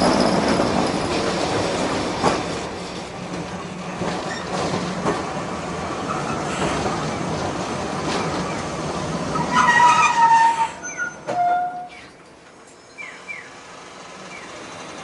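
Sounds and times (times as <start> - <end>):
tram running: 0.0 - 15.0
wheels squealing: 9.3 - 12.2.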